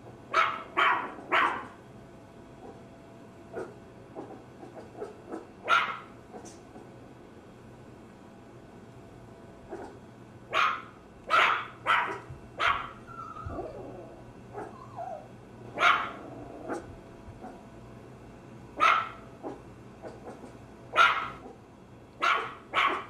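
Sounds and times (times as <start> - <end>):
small dog barking: 0.3 - 1.8, 3.6 - 4.4, 5.0 - 6.5, 9.7 - 17.6, 18.8 - 21.6, 22.2 - 23.0
dog whining: 12.7 - 17.6.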